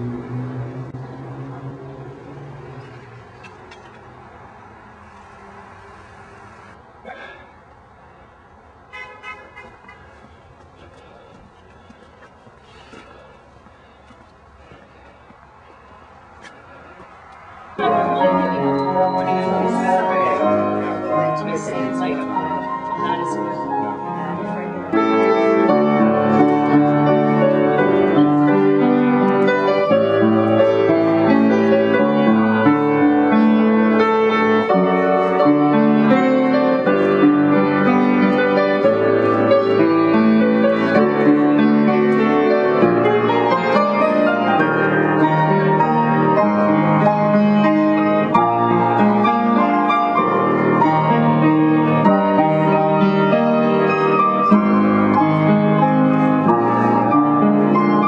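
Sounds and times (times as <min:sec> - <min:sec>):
piano playing: 0:00.0 - 0:03.2, 0:17.8 - 0:58.0.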